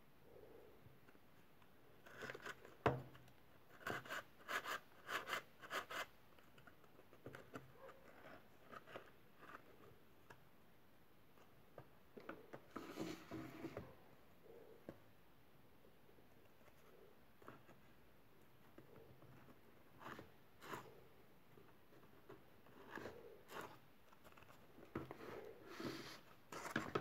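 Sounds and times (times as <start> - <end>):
cardboard scraping rubs: 12.6 - 14.0, 22.7 - 27.0.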